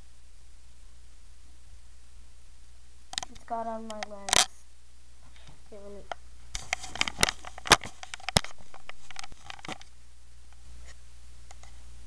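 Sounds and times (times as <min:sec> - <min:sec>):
camera handling taps and rubbing: 0:06.6 - 0:09.9.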